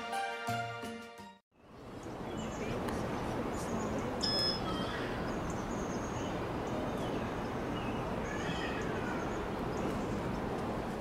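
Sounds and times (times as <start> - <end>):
steady background hiss: 1.6 - 11.0
faint bird chirps: 4.2 - 9.9.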